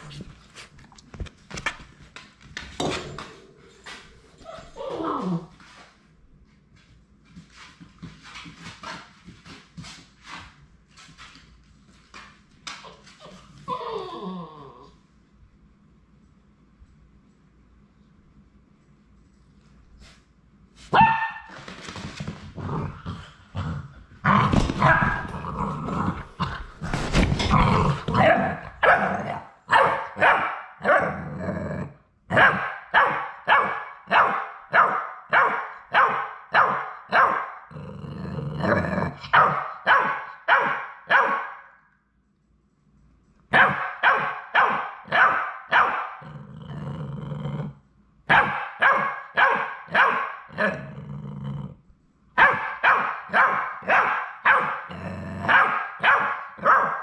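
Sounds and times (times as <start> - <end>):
puppy barking: 20.9 - 21.5, 28.2 - 31.2, 32.3 - 37.6, 39.3 - 41.8, 43.5 - 46.2, 48.3 - 50.6, 52.4 - 54.9, 55.5 - 57.0.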